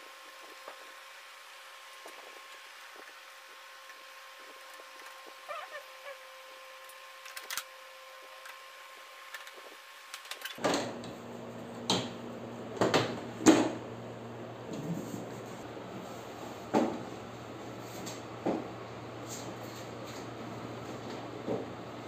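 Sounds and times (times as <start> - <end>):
sharp plastic clacks: 6.9 - 7.7, 9.3 - 10.6.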